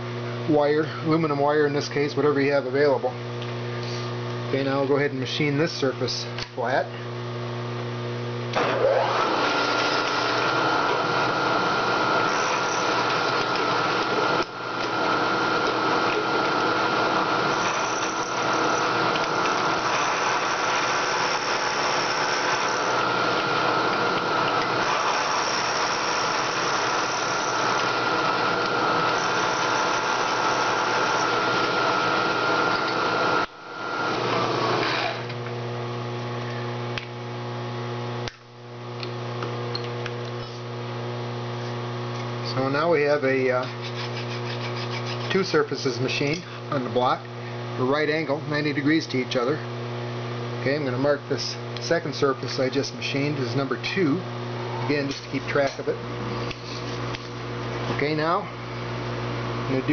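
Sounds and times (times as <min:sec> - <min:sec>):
machine humming: 0:06.9 - 0:43.2
milling machine cutting whine: 0:08.5 - 0:35.4.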